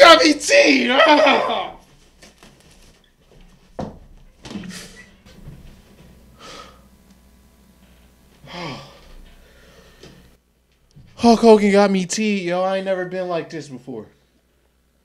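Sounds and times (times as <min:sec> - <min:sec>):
man sighing: 0:06.4 - 0:06.8, 0:08.4 - 0:09.8
man breathing hard: 0:06.4 - 0:06.9, 0:08.4 - 0:10.2.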